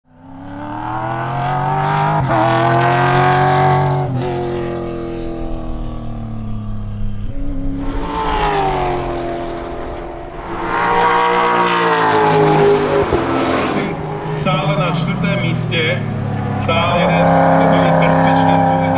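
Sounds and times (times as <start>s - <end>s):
race car engine revving: 0.1s - 18.9s.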